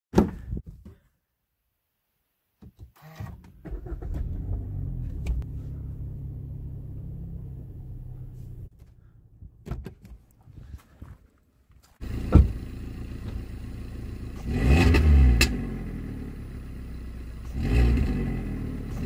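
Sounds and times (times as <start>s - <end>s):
car engine starting and idling: 3.4s - 9.7s, 11.9s - 19.0s.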